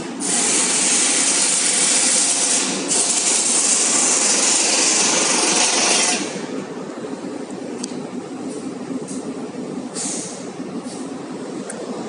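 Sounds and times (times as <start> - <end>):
low fan hum: 2.5 - 12.0
air rushing from duct: 8.3 - 11.4.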